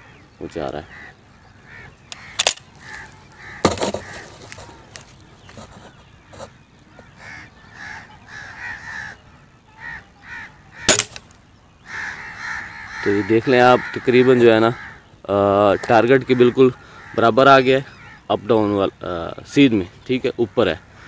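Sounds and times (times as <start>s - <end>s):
birds calling: 0.0s - 21.0s
air rifle shot: 10.9s - 11.3s.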